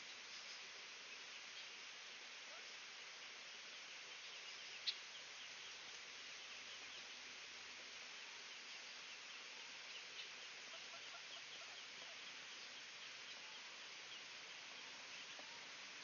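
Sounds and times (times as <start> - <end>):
outdoor background hiss: 0.0 - 16.0
ducklings peeping: 9.9 - 15.5.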